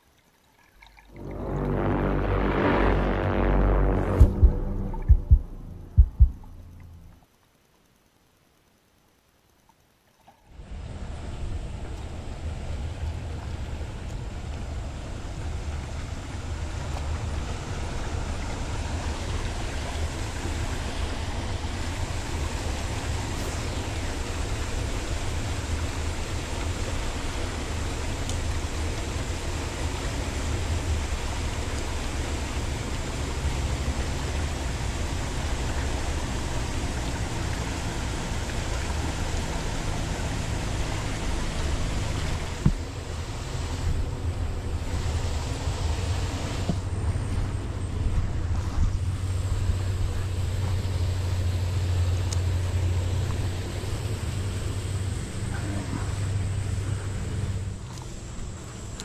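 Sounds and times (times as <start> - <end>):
creek water running over rocks: 0.0 - 2.4, 8.6 - 59.0
low rumble: 1.1 - 7.3.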